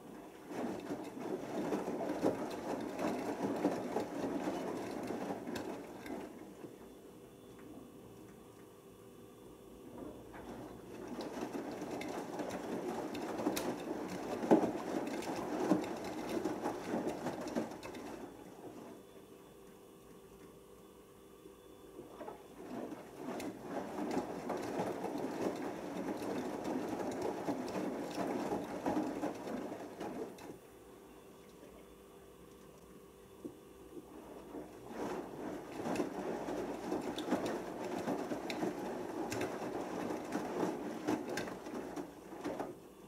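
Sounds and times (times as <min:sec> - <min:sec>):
washing machine drum tumbling: 0:00.0 - 0:07.0, 0:09.9 - 0:19.1, 0:22.0 - 0:30.6, 0:34.0 - 0:43.0.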